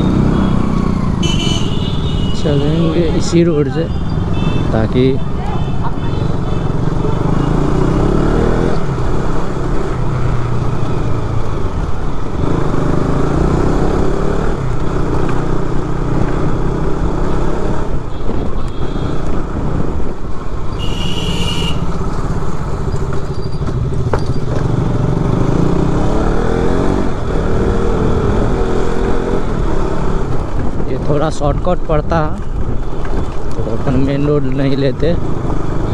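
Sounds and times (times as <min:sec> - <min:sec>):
horn beep: 0:00.0 - 0:03.2, 0:20.8 - 0:21.9.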